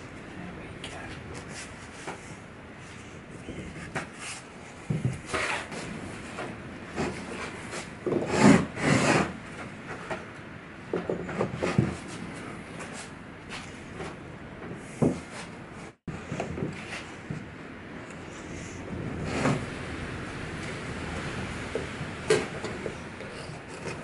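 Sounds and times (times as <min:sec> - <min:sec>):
wooden knocks and scrapes: 0:03.5 - 0:10.3, 0:10.9 - 0:17.5.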